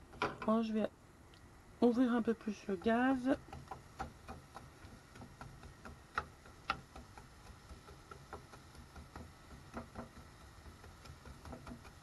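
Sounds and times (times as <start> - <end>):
wooden spatula tapping frying pan: 2.4 - 12.0.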